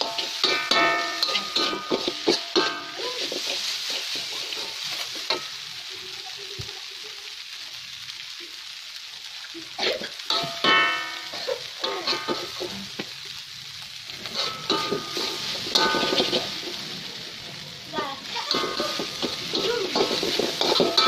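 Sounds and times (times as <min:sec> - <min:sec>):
metal spatula scraping a wok: 0:00.0 - 0:05.6, 0:10.2 - 0:13.0, 0:14.1 - 0:16.9, 0:17.9 - 0:21.0
noodles sizzling in a wok: 0:00.0 - 0:21.0.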